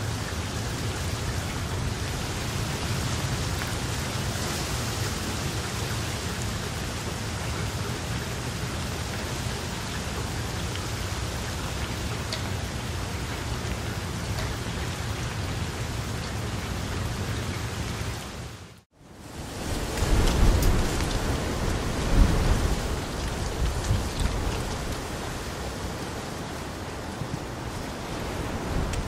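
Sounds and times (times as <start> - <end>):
rain falling on water: 0.0 - 29.0.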